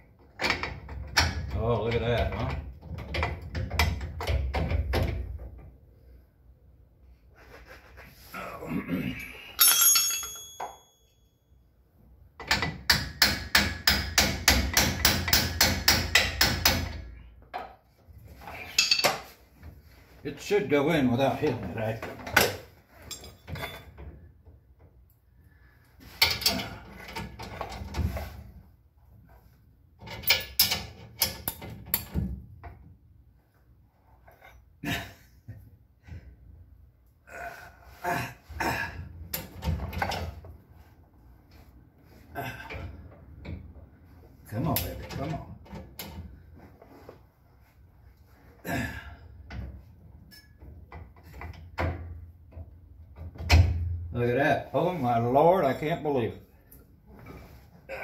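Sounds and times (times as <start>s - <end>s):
sharp metal knocks and clunks: 12.4s - 17.8s
hand tools scraping and clanking metal: 18.2s - 20.0s, 21.2s - 24.1s, 26.0s - 28.6s, 49.5s - 51.7s.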